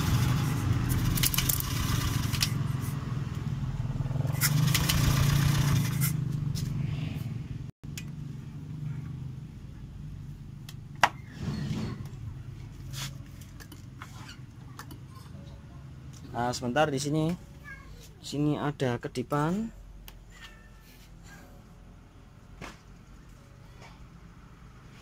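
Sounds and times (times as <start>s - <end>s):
starter motor whirring: 4.3s - 6.1s.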